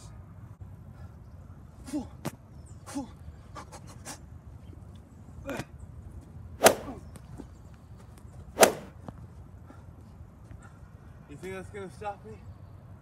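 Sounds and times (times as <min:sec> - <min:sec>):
fistfight swishes and hits: 0:06.6 - 0:07.0, 0:08.6 - 0:08.9.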